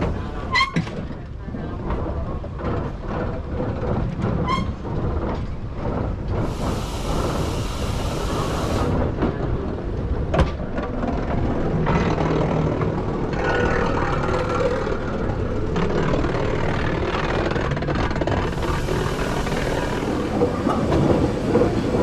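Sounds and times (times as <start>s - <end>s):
train rumbling and rattling: 0.0s - 22.0s
hiss: 6.4s - 9.0s, 18.5s - 20.4s.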